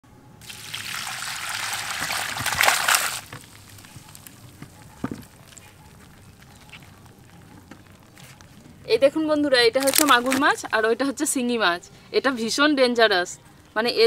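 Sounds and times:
water splashing and sloshing: 0.4s - 6.3s.

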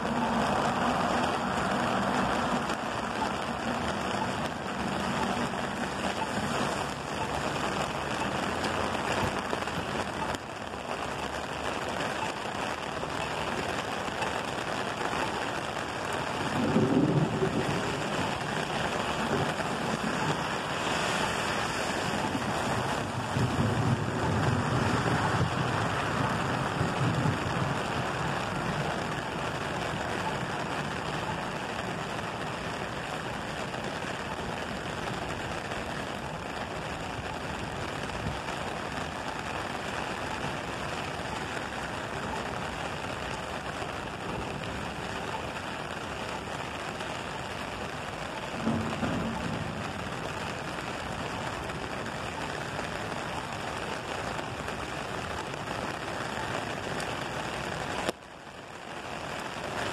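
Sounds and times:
thunder rumbling: 0.0s - 58.0s
heavy rain on pavement: 0.0s - 59.9s.

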